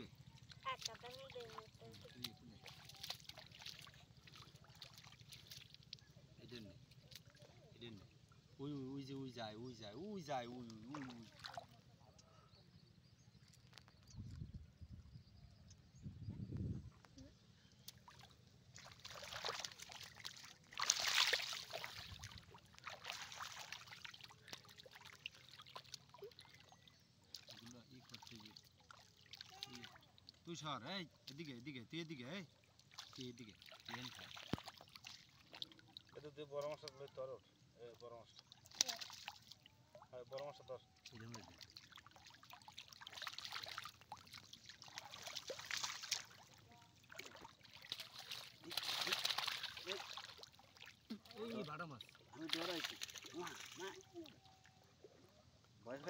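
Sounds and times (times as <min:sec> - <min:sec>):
fish splashing in water: 0:00.1 - 0:06.1, 0:17.9 - 0:30.5, 0:32.7 - 0:36.2, 0:38.4 - 0:55.1.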